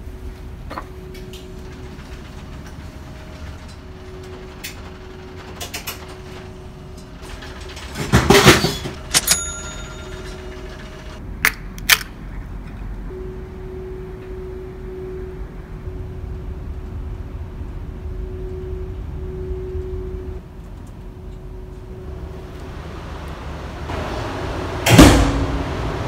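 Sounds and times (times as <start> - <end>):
low hum: 0.0 - 11.3, 12.6 - 26.0
short metallic clinks: 9.0 - 10.4.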